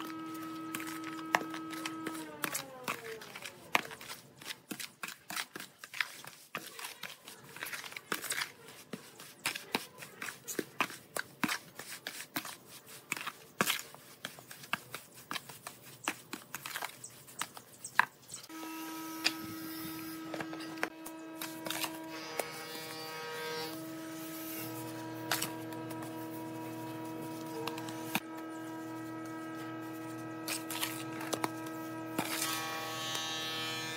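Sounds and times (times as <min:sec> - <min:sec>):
trowel scraping wet mortar: 0:00.0 - 0:18.6, 0:19.2 - 0:22.9, 0:23.6 - 0:33.3
steady hum: 0:18.5 - 0:33.9.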